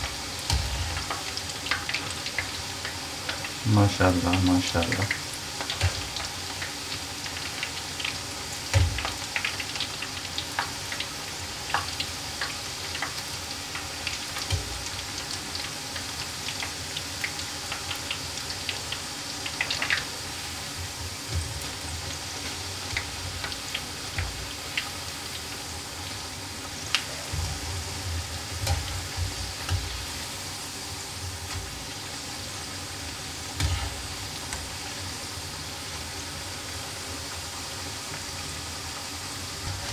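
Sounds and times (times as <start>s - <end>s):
fritters deep-frying sizzle: 0.0s - 39.9s.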